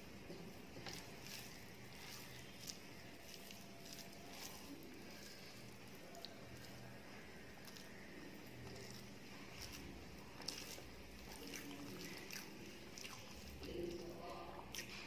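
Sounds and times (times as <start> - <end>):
fingers squishing rice: 0.0 - 15.0.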